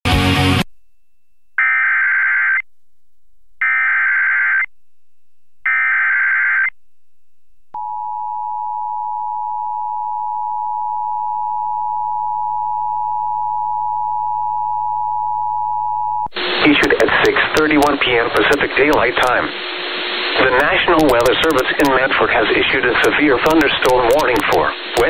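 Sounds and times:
two-tone attention signal: 0:20.4 - 0:21.2.

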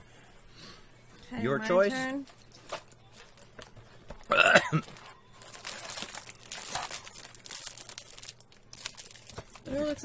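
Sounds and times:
snack packaging crinkling: 0:04.8 - 0:10.0.

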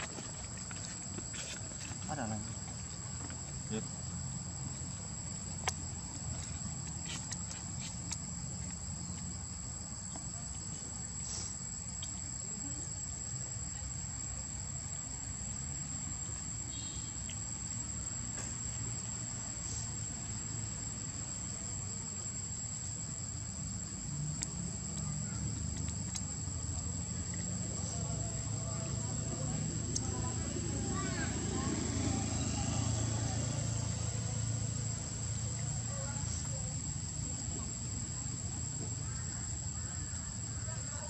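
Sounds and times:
insects droning: 0:00.0 - 0:41.0.

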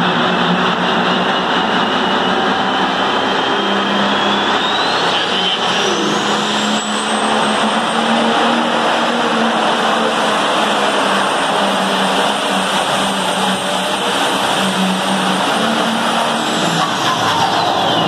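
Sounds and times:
tractor engine running hard: 0:00.0 - 0:18.0
turbocharger whine: 0:00.0 - 0:18.0.

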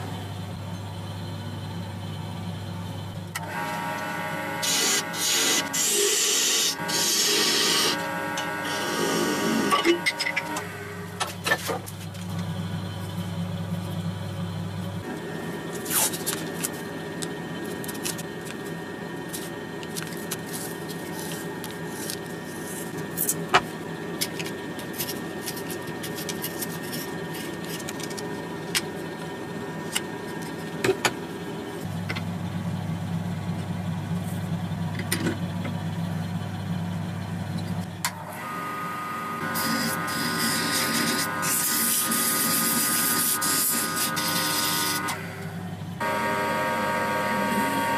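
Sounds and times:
steady machine hum: 0:00.0 - 0:47.9
wood lathe running with whine: 0:00.0 - 0:47.9
hands handling tape and knife: 0:15.8 - 0:18.7, 0:19.3 - 0:23.4, 0:24.2 - 0:28.8.

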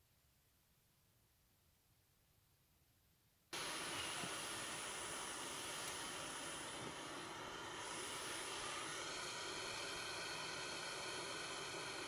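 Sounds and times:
gas stove flame hissing: 0:03.6 - 0:12.0.

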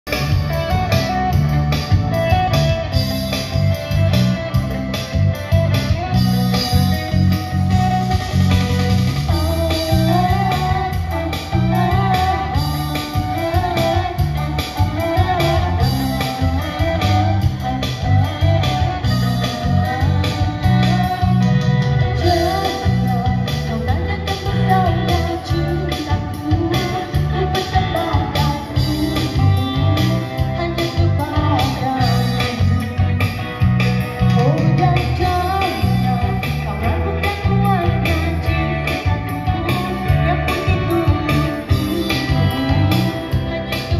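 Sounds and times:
electric guitar: 0:00.0 - 0:43.9
heavy bass line: 0:00.0 - 0:43.9
keyboard: 0:00.0 - 0:43.9
steady drum beat: 0:00.1 - 0:30.5
woman singing into microphone: 0:09.3 - 0:33.2, 0:34.2 - 0:43.9.

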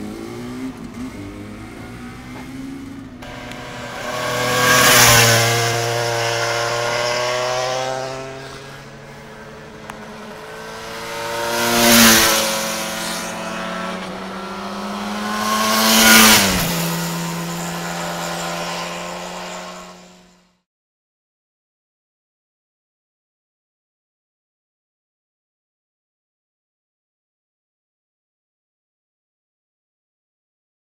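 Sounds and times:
motorcycles passing by: 0:00.0 - 0:20.5.

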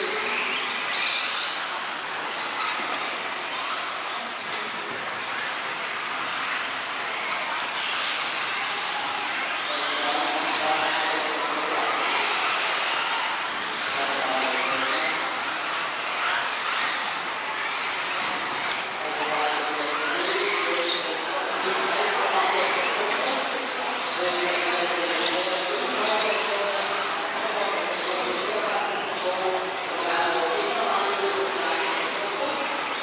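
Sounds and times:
rc car motors whining: 0:00.1 - 0:33.0.

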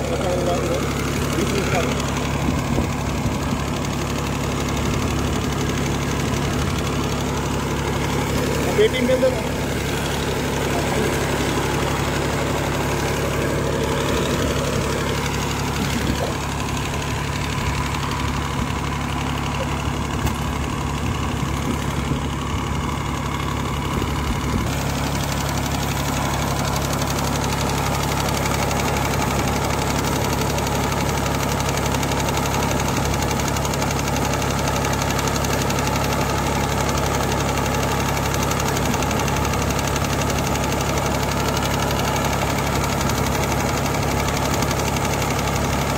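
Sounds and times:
tractor engine idling: 0:00.0 - 0:45.9.

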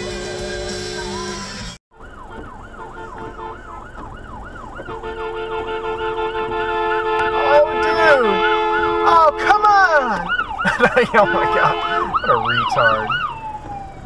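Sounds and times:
music: 0:00.0 - 0:01.8
steady horn-like tones: 0:00.0 - 0:03.8, 0:04.9 - 0:10.2, 0:10.8 - 0:13.2
emergency vehicle siren yelping: 0:00.0 - 0:07.4, 0:08.6 - 0:14.0.

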